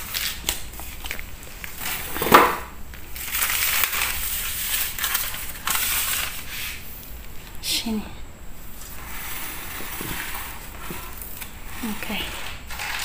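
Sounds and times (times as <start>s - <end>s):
newspaper rustling: 0.0s - 6.9s.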